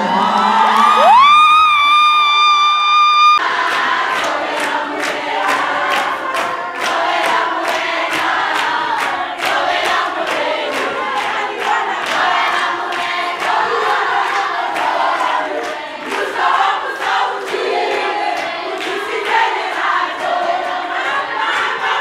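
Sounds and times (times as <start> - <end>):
large crowd singing: 3.4 - 22.0
rhythmic hand claps: 3.4 - 22.0.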